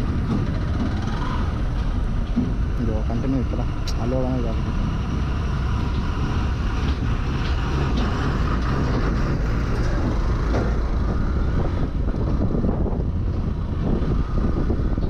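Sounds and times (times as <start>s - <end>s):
motorcycle engine running: 0.0s - 2.8s
road noise: 0.0s - 15.0s.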